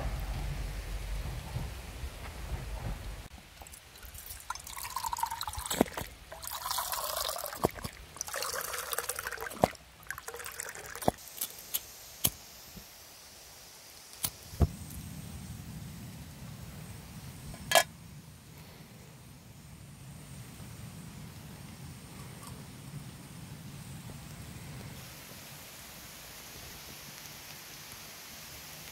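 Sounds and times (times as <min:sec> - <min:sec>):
water pouring into a mug: 0:03.6 - 0:11.2.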